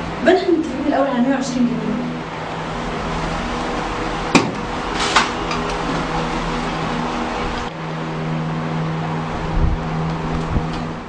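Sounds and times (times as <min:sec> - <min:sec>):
steady low hum: 0:00.0 - 0:11.0
sharp knock: 0:04.3 - 0:04.6.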